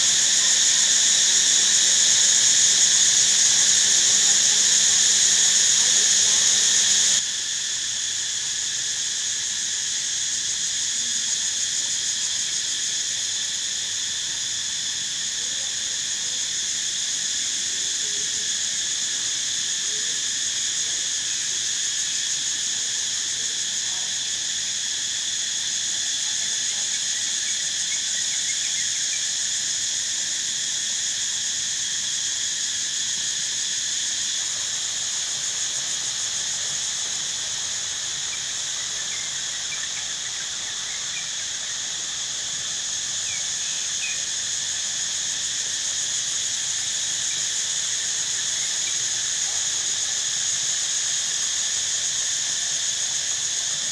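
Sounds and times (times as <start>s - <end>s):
shrill insect chorus drone: 0.0s - 53.9s.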